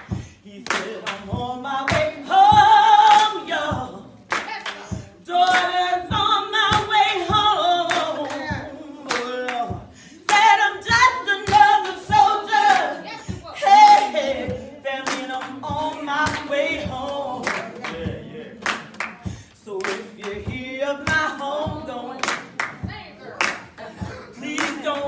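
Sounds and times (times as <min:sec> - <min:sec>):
hand claps: 0:00.0 - 0:02.2, 0:03.0 - 0:10.5, 0:15.0 - 0:20.5, 0:21.1 - 0:23.9, 0:24.5 - 0:25.0
person singing: 0:23.8 - 0:25.0.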